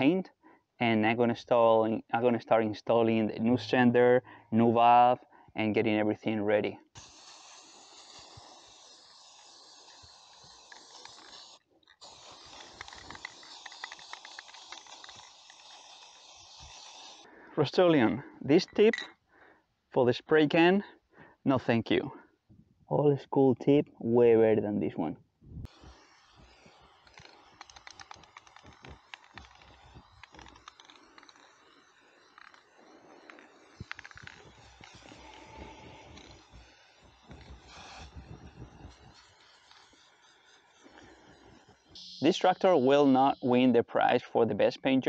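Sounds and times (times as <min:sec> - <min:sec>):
spray paint can hissing: 0:06.8 - 0:17.3, 0:25.6 - 0:44.1
small irregular clicks: 0:09.6 - 0:17.3, 0:25.6 - 0:42.3.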